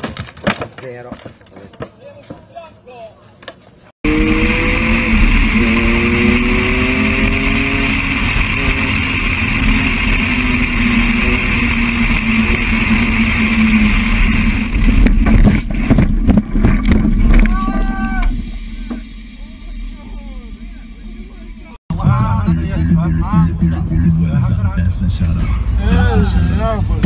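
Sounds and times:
wind and road noise: 0.0 - 21.8
car engine accelerating hard: 4.0 - 21.8
car crashing: 13.8 - 21.8.

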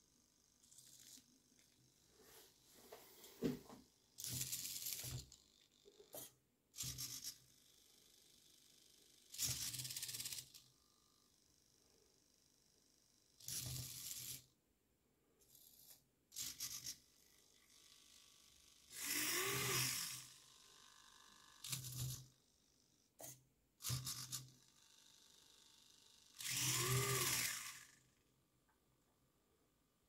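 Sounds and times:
servos whirring: 18.9 - 22.3, 26.3 - 28.0.

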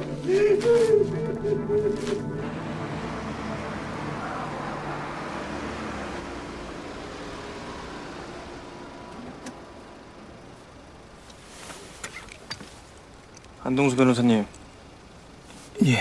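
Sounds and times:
car driving by: 0.0 - 10.4.

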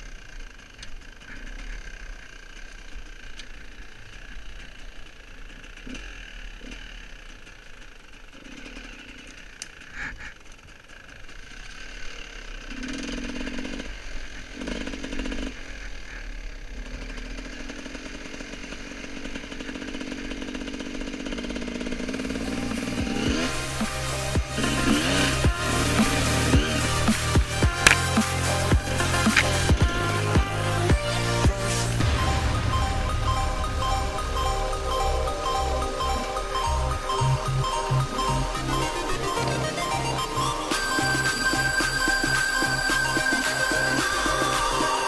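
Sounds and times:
dirt bike engine revving: 0.0 - 45.0
music: 22.6 - 45.0.

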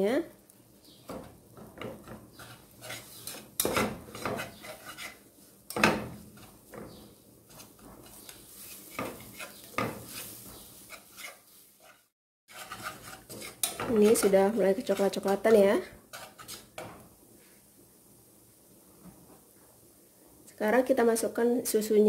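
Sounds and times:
whisk scraping metal saucepan: 1.1 - 16.9.

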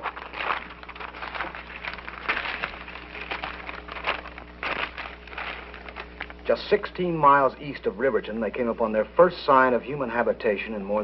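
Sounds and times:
paper rustling and crinkling: 0.0 - 6.5.

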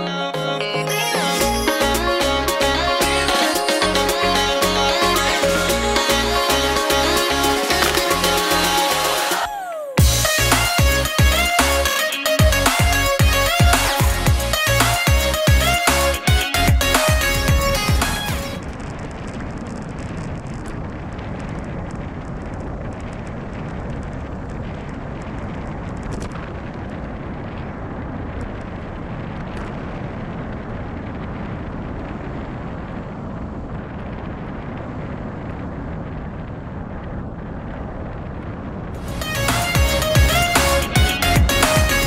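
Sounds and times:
wind rushing over microphone: 16.2 - 42.0.

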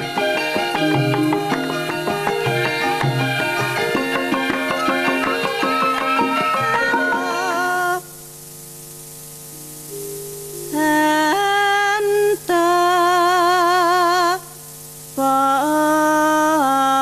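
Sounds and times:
held accompaniment notes: 0.0 - 8.0
vibrato melody of held notes: 0.0 - 8.2, 9.5 - 12.4.

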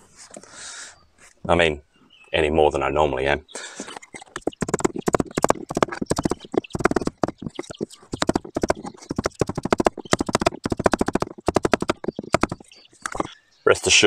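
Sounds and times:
rubber mallet knocking wood block: 4.4 - 13.3.

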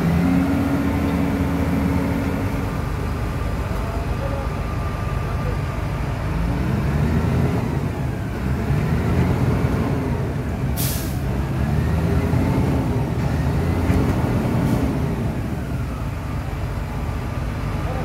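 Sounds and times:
diesel engine rumbling: 0.0 - 18.0
short sharp hiss: 10.8 - 11.2.

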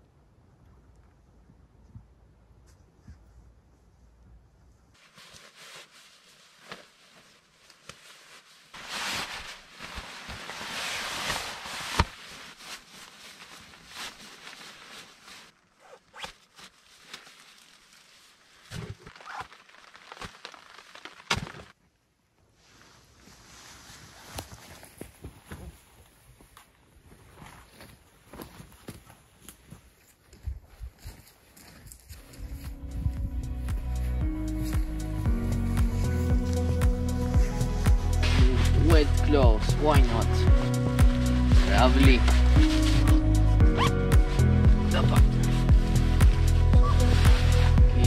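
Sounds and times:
fabric rustling and crumpling: 5.0 - 21.8, 22.6 - 30.1, 38.2 - 43.5.

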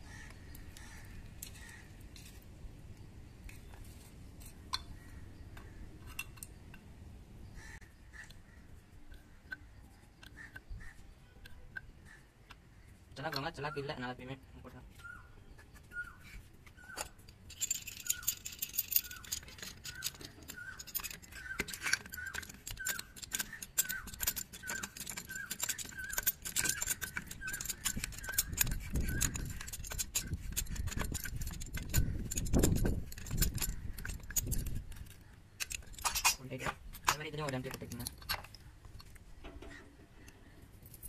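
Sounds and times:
threads clicking and scraping: 0.0 - 6.9, 14.7 - 41.0
metal clinking from wrench: 17.4 - 36.4.

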